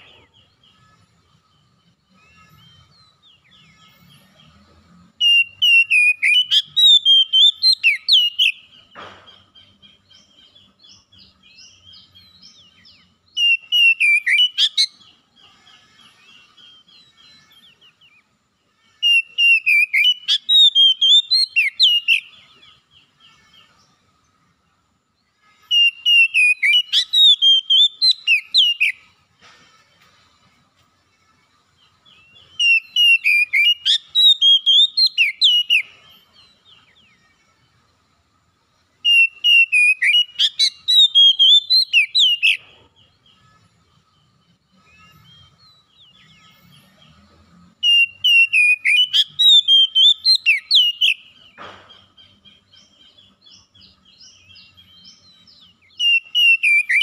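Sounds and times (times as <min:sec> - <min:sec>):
bird singing whistled phrases: 0:05.2 - 0:08.7, 0:12.7 - 0:15.0, 0:19.0 - 0:22.4, 0:25.7 - 0:29.0, 0:32.2 - 0:35.9, 0:39.0 - 0:42.6, 0:47.8 - 0:51.4, 0:53.9 - 0:57.0.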